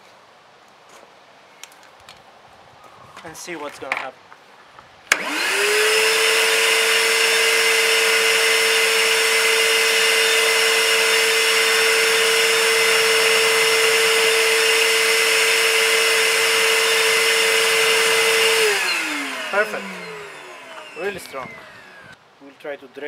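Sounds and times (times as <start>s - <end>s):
vacuum cleaner motor whine: 5.1s - 22.2s.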